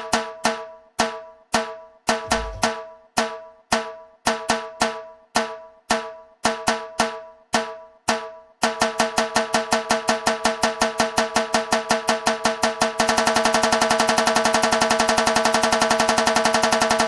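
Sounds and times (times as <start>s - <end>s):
snare drum roll build-up: 2.3s - 2.8s.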